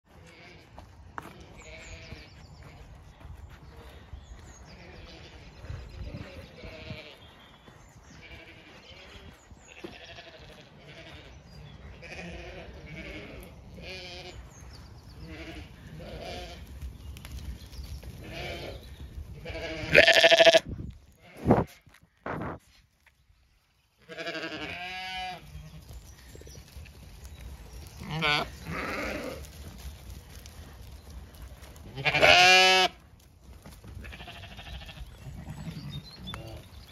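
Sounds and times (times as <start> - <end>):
sheep bleating: 0.1 - 2.8, 8.2 - 14.4, 15.2 - 16.7, 18.2 - 18.8, 19.4 - 22.0, 24.0 - 25.4, 28.0 - 29.6, 31.9 - 33.0, 34.0 - 36.6.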